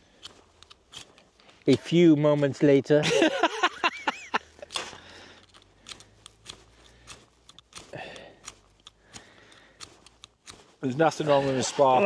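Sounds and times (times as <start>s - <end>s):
faint clicks: 4.7s - 10.6s.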